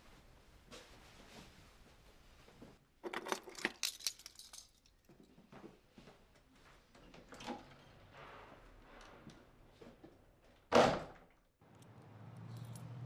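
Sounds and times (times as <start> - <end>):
keys jangling: 3.1 - 5.0, 12.4 - 13.0.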